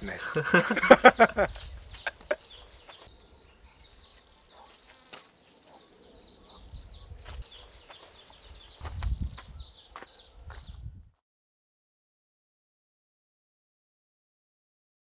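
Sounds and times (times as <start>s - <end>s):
insects chirping: 0.0s - 5.3s.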